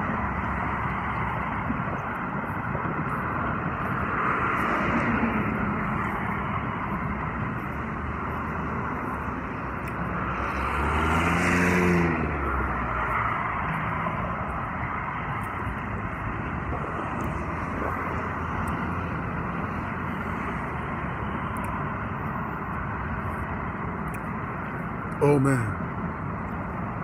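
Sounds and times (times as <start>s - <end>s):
motor vehicle passing: 0.0s - 21.4s
road traffic noise: 0.0s - 27.0s.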